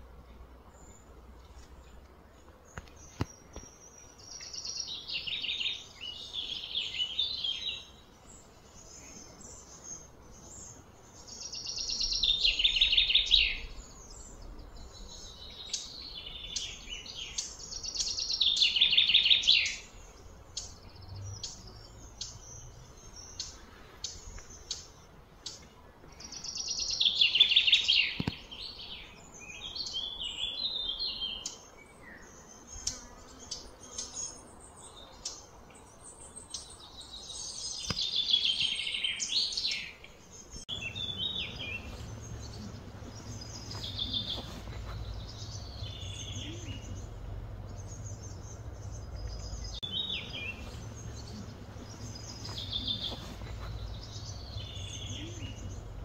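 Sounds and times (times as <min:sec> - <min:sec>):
bird chirps: 0:02.7 - 0:56.0
songbird trilling: 0:09.0 - 0:25.6, 0:36.4 - 0:56.0.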